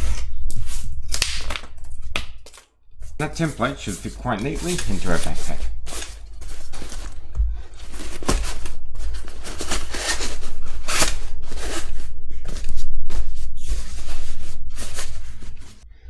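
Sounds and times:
cardboard scraping against fabric: 3.1 - 15.8.

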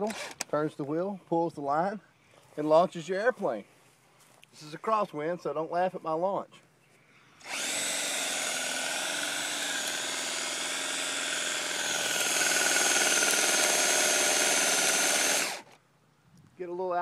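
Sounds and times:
cordless drill motor whine: 7.4 - 15.8.

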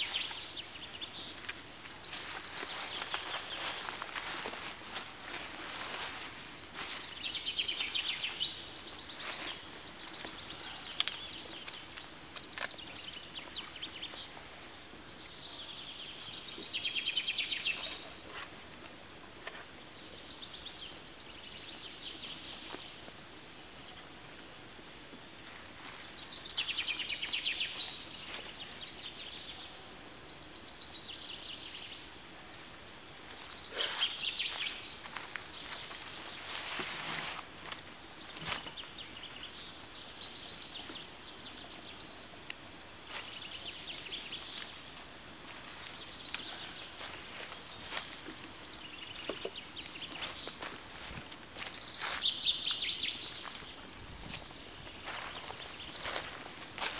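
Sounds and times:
campfire crackling and popping: 9.5 - 13.7, 44.1 - 51.8.

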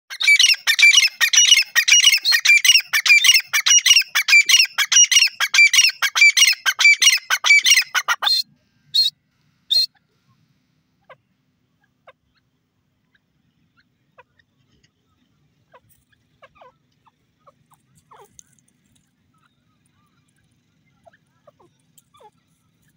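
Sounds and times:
bird calling shrill notes: 0.1 - 8.4, 9.7 - 10.0.

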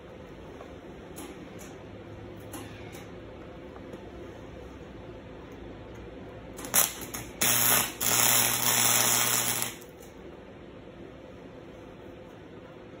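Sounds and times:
low welder hum: 0.0 - 13.0
welder arc crackling: 6.5 - 10.2.

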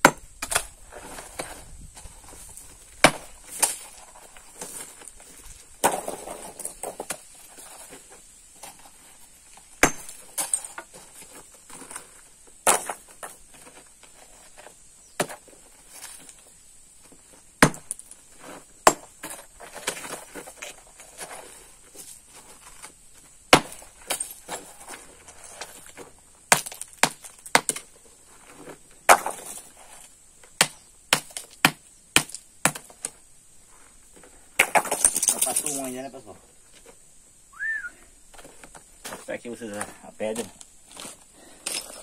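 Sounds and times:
hammer striking stone: 3.0 - 3.3, 9.8 - 10.6, 17.6 - 18.0, 18.8 - 19.1, 23.5 - 24.2, 26.5 - 27.8, 30.6 - 32.9.

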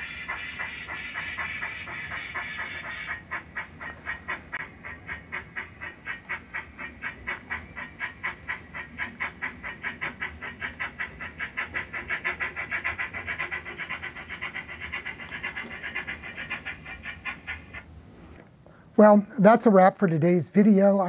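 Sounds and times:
model locomotive steam chuff: 0.0 - 3.3, 4.6 - 17.4.

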